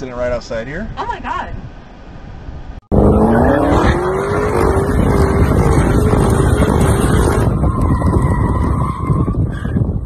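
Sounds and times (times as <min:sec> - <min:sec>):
car engine revving: 0:02.9 - 0:08.8
loud rumbling noise: 0:02.9 - 0:10.0.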